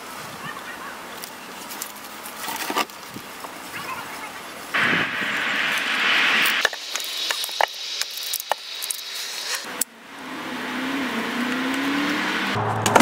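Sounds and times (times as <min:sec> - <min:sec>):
hand auger scraping into wood: 0:01.8 - 0:03.2
wood and tool clicking: 0:06.6 - 0:09.7.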